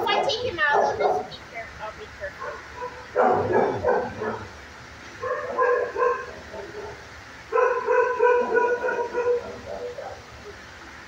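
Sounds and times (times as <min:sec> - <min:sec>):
dog barking: 0:00.0 - 0:01.4, 0:02.4 - 0:04.6, 0:05.2 - 0:10.3.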